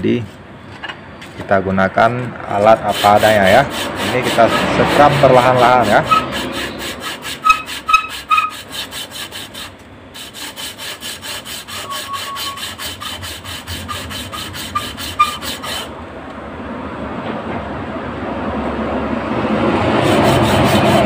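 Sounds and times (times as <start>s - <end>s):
metal part scraping on sandpaper: 2.2s - 15.9s, 19.9s - 21.0s.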